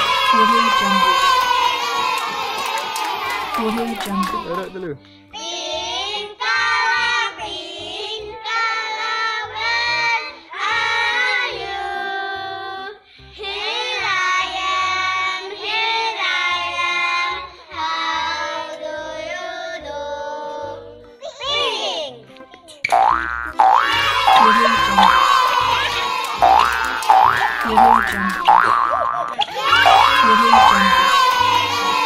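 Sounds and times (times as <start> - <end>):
child singing: 29.5 - 32.0.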